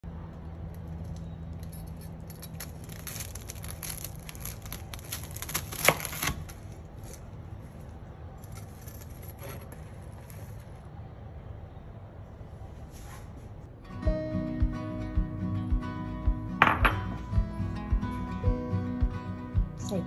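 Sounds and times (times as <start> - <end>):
pastry crackling under knife: 0.6 - 10.8.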